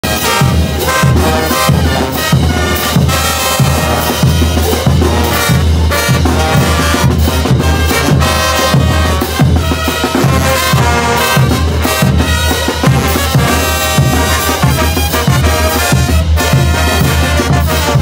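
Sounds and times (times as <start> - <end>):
bass drum beat: 0.0 - 18.0
brass band playing: 0.0 - 18.0.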